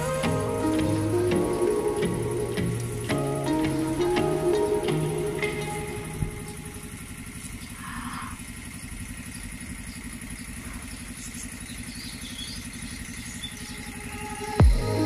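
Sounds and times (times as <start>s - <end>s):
engine running with low throb: 0.0s - 15.0s.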